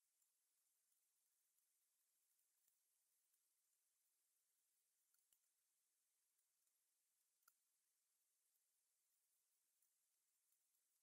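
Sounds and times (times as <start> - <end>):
very faint ticks: 6.4 - 7.8.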